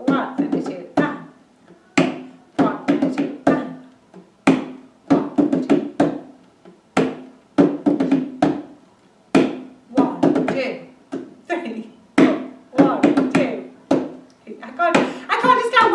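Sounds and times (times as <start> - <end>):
hand drum rhythm: 0.0 - 1.4, 2.0 - 11.4, 12.2 - 14.3.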